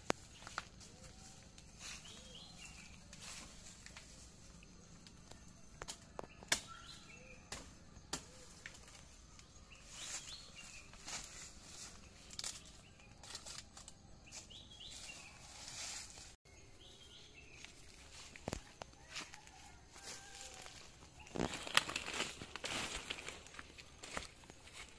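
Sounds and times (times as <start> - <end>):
birds chirping: 0.0 - 24.9
rustling leaves and undergrowth: 0.0 - 24.9
footsteps: 17.5 - 24.9.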